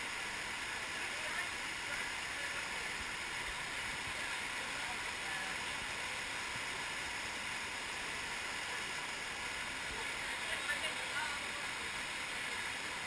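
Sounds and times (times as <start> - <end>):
small waterfall pouring into pool: 0.0 - 13.0.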